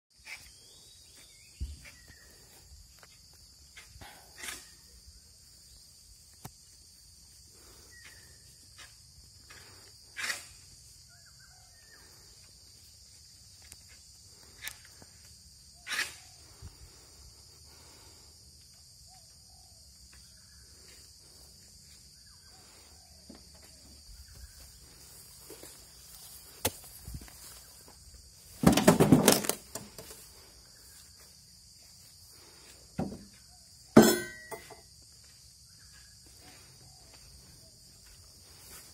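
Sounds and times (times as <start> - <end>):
footsteps on grass: 23.4 - 28.6, 34.9 - 38.9
metal wheelbarrow knocking: 28.6 - 30.0, 34.0 - 34.8.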